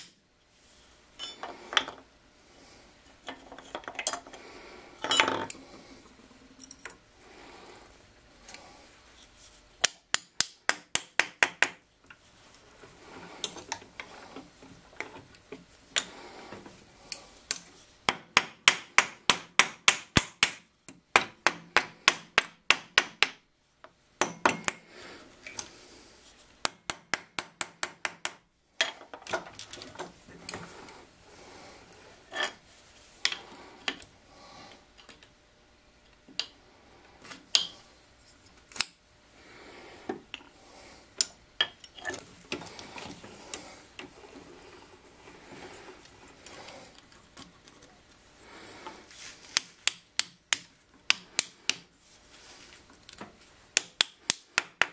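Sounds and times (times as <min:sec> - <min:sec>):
rubbing and handling noise: 0:00.4 - 0:09.8, 0:11.8 - 0:18.1, 0:28.8 - 0:35.4, 0:36.6 - 0:54.6.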